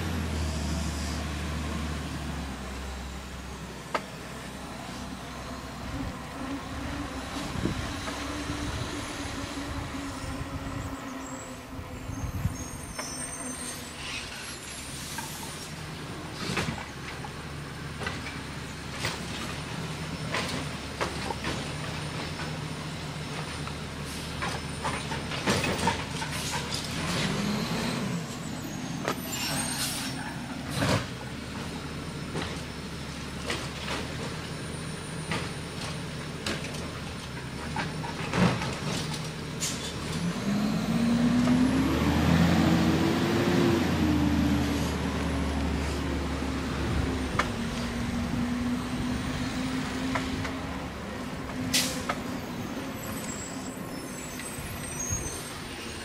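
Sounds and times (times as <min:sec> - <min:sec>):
garbage truck diesel engine: 0:00.0 - 0:56.0
air brake hisses: 0:29.2 - 0:30.4.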